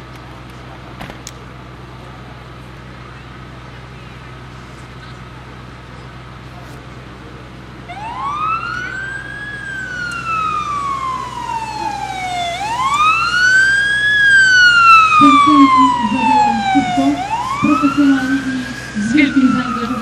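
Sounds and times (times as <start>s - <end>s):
police siren wailing: 7.8s - 20.0s.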